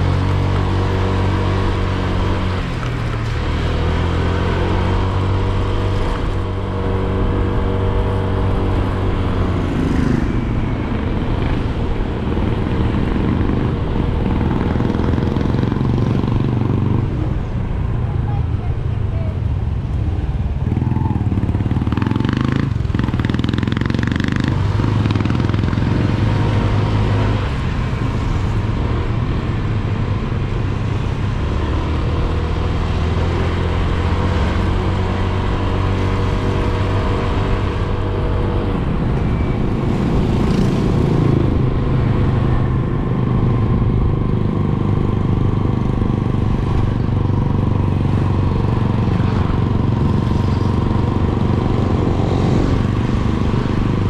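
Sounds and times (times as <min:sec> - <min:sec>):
motorcycle engine running: 0:20.5 - 0:54.0.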